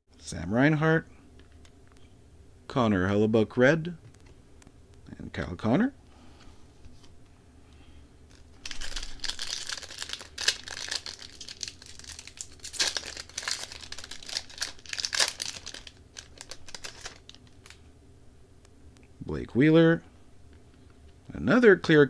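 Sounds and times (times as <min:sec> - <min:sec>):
wrapper tearing and crinkling: 0:08.3 - 0:17.8.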